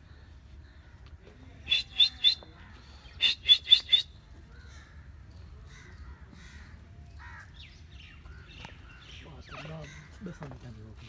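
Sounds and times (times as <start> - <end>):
partridge calling harshly: 1.7 - 4.1.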